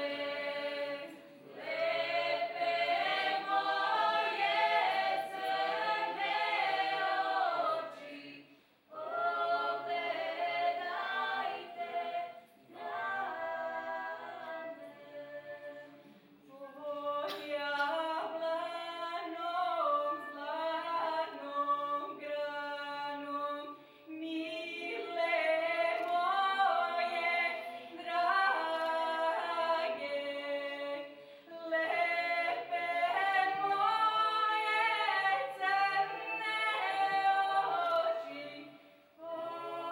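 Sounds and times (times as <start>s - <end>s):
choir of young voices singing: 0.0s - 39.9s
female soloist singing: 24.2s - 39.9s.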